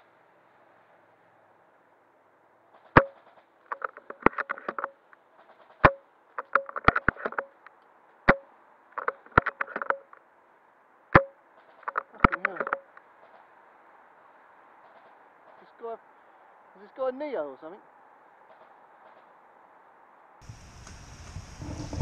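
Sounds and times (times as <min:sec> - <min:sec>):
airsoft rifle shot cracks: 0:02.8 - 0:05.0
rifle bolt clicks rattling: 0:02.9 - 0:10.2, 0:11.2 - 0:13.4.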